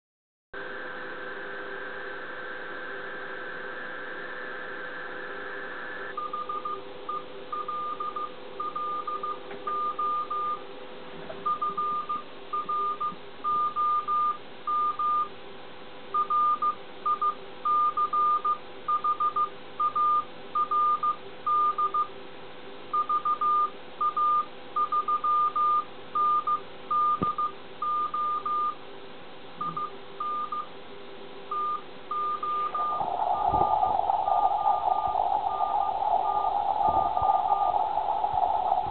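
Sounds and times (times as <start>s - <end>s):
morse code beeps: 6.2s - 10.6s, 11.4s - 15.3s, 29.6s - 30.7s, 31.5s - 33.7s
faint steady whistles: 31.5s - 38.9s
rushing radio noise: 32.6s - 38.9s.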